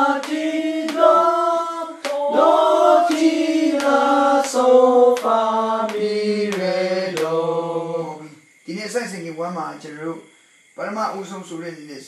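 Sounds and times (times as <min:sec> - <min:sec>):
voices singing a descending scale: 0:00.0 - 0:08.4.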